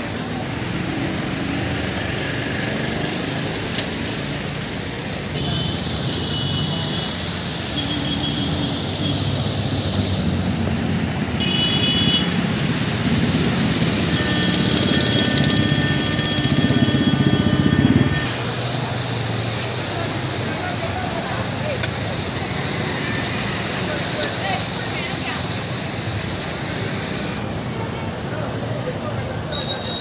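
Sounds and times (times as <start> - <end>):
road traffic: 0.0 - 30.0
vehicle engine running: 5.4 - 27.3.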